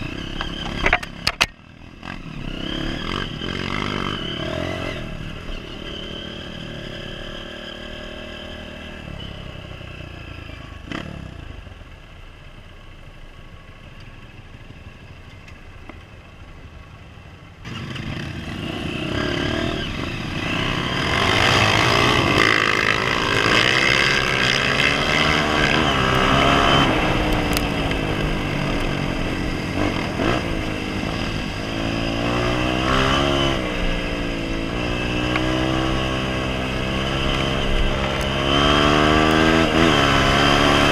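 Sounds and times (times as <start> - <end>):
dirt bike engine revving: 0.0 - 1.2, 1.9 - 9.3, 17.6 - 40.9.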